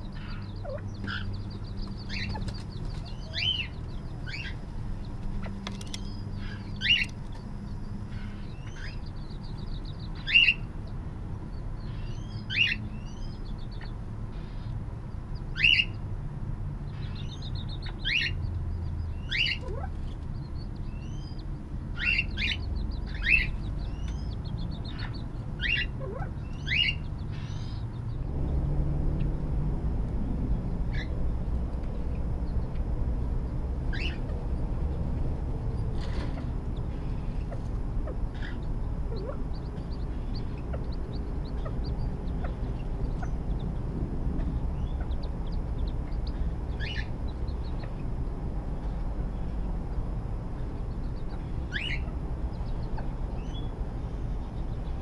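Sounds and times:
quail chirping calls: 0.0s - 10.7s, 11.8s - 14.7s, 15.5s - 15.9s, 16.9s - 18.5s, 19.1s - 27.9s, 30.8s - 31.2s, 33.8s - 48.2s, 50.5s - 55.0s
bird trilling: 0.1s - 9.0s, 33.9s - 34.4s, 36.2s - 48.0s, 51.2s - 52.2s.

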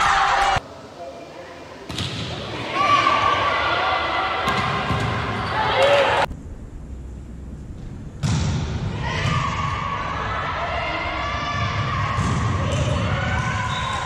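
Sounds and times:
players shouting: 2.4s - 6.3s.

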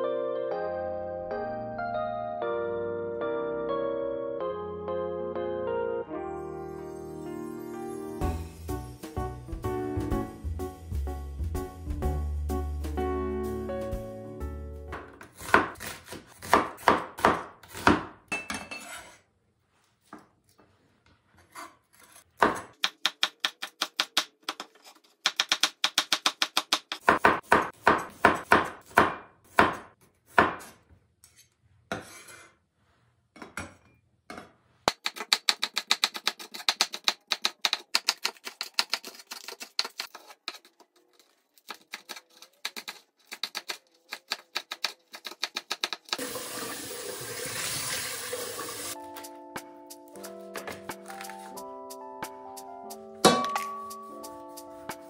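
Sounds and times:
knife chopping on wooden board: 14.9s - 18.2s, 21.5s - 24.6s, 25.2s - 30.8s.

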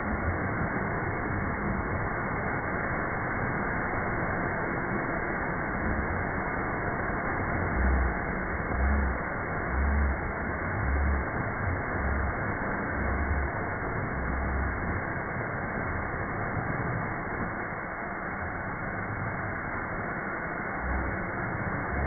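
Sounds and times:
deep pulse: 6.7s - 17.5s, 20.6s - 22.0s.

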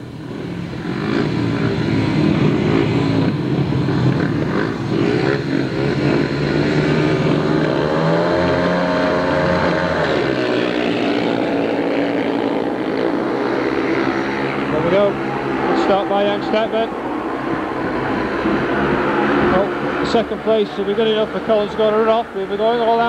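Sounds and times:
motorcycle engines revving hard: 0.0s - 23.0s.

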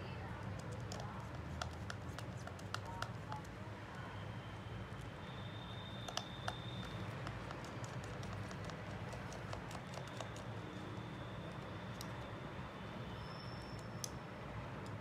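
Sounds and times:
small tools clicking and tapping: 0.4s - 3.6s, 6.0s - 10.6s.

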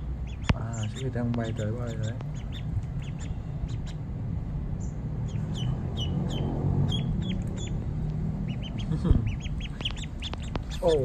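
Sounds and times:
duckling peeping: 0.0s - 4.1s, 4.8s - 11.0s
steady low rumble: 0.0s - 11.0s.

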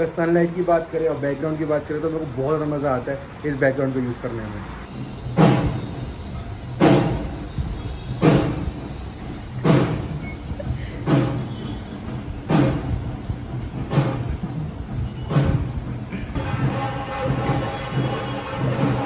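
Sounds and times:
music with deep drum beat: 4.9s - 19.0s.

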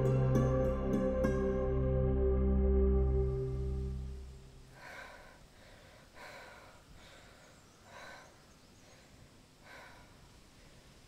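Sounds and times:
woman breathing heavily: 4.6s - 11.0s.

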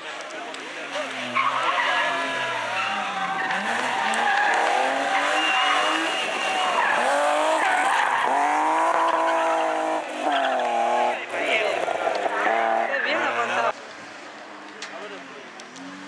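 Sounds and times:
tyres squealing and skidding: 0.7s - 13.8s
rally car engine revving hard: 0.9s - 13.7s.

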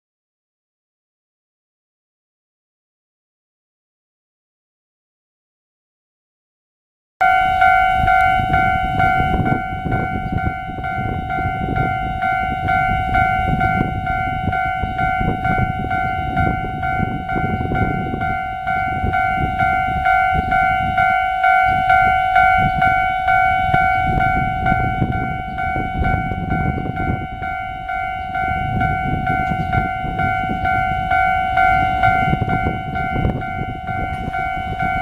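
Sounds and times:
level crossing bell dinging: 7.2s - 35.0s.

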